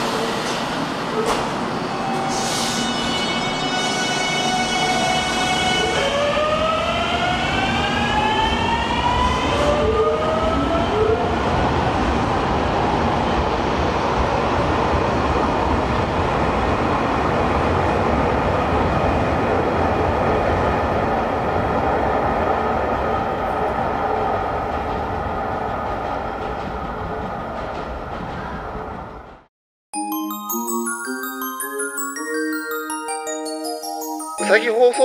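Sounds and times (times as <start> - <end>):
train wheels rumbling on rails: 24.5 - 29.5.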